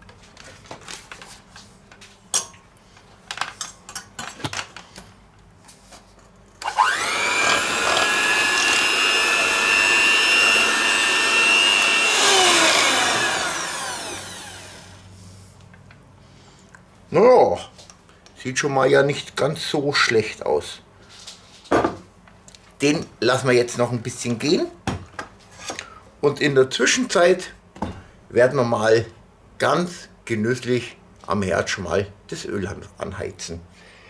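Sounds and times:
electric hand mixer whining: 0:06.6 - 0:15.1.

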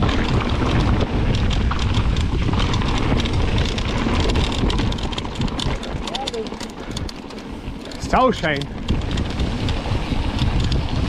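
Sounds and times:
bike tyres on gravel: 0:00.0 - 0:11.0
stones and bike rattling: 0:00.0 - 0:11.0
wind rumbling on microphone: 0:00.0 - 0:11.0.

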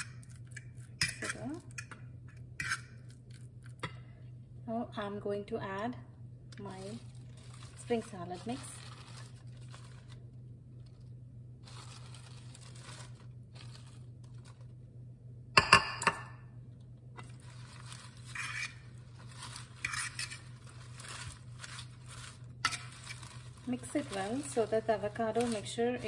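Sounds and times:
salad leaves rustling: 0:06.6 - 0:14.7, 0:17.2 - 0:26.0.

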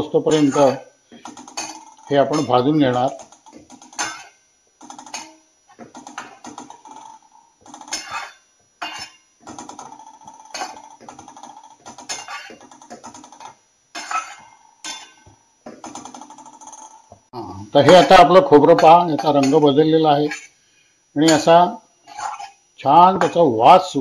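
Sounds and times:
spatula scraping metal pan: 0:07.8 - 0:09.2.

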